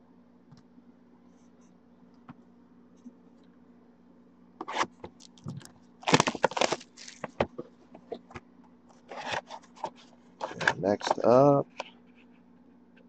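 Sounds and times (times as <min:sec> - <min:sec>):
plastic shrink wrap tearing: 0:06.0 - 0:07.3.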